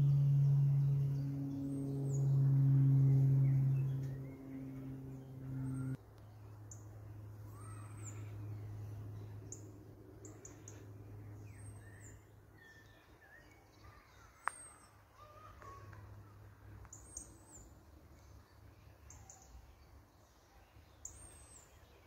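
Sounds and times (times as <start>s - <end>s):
low drone of held tones: 0.0s - 13.8s
small birds chirping: 0.0s - 22.0s.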